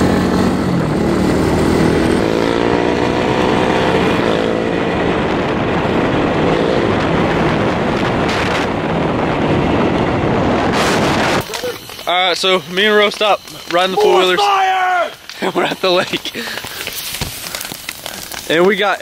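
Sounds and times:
wind on microphone: 0.0s - 11.9s
atv engine running: 0.0s - 14.4s
road noise: 0.0s - 19.0s.

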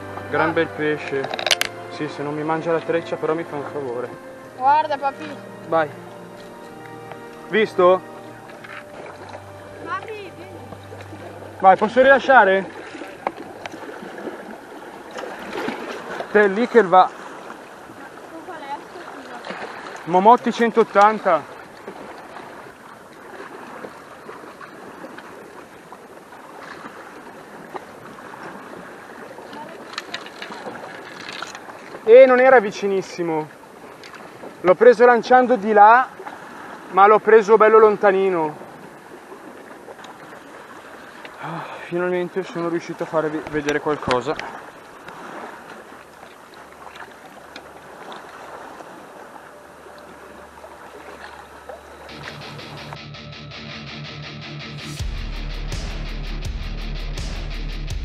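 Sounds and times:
small splashes and clicks: 1.0s - 1.8s, 11.8s - 16.8s, 18.3s - 25.8s, 27.7s - 32.5s, 33.4s - 34.5s, 39.9s - 41.4s, 42.5s - 48.6s
sea water washing against rocks: 6.5s - 53.0s.

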